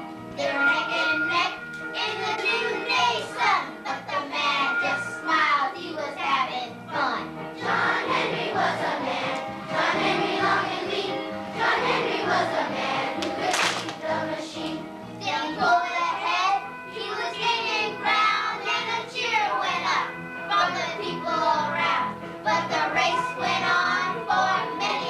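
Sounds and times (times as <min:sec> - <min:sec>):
instrumental accompaniment: 0:00.0 - 0:25.0
children's choir singing: 0:00.4 - 0:25.0.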